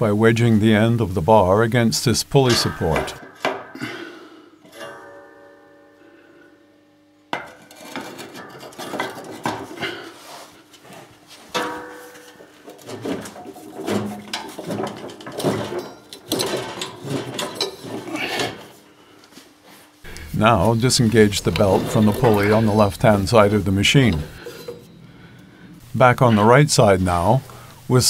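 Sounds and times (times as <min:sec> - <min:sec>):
steel bar clanking and scraping metal: 0:02.4 - 0:06.3, 0:07.3 - 0:10.6, 0:11.5 - 0:18.8, 0:20.1 - 0:27.7.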